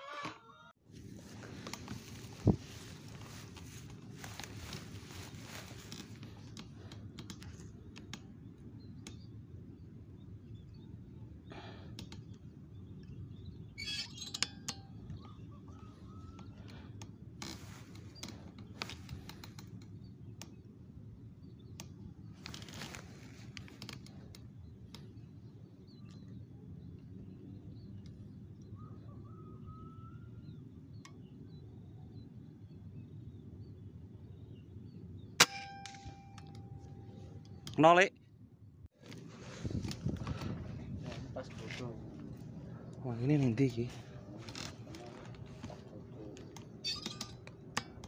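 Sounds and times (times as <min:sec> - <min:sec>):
handling clicks and rustles: 0:00.9 - 0:09.3, 0:16.4 - 0:20.6, 0:21.7 - 0:25.4, 0:43.6 - 0:48.0
steady low rumble: 0:38.7 - 0:46.6.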